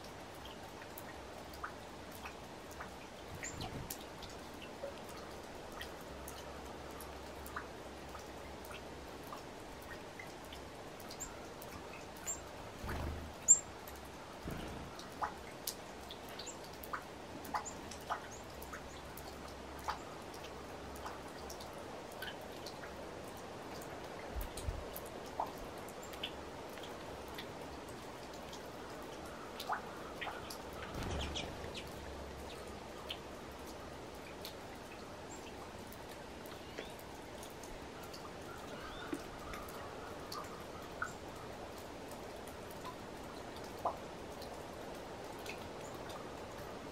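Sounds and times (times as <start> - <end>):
faint steady hiss: 0.0 - 46.9
low rumbles: 12.8 - 13.7, 14.4 - 15.3, 30.8 - 32.9.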